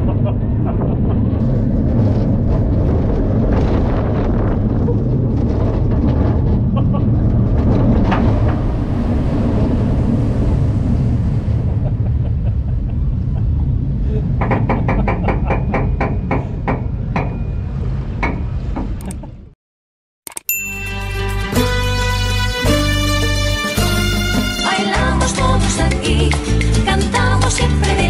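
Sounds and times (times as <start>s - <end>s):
rumble of wind and water: 0.0s - 19.6s
regular clicking: 20.3s - 20.6s.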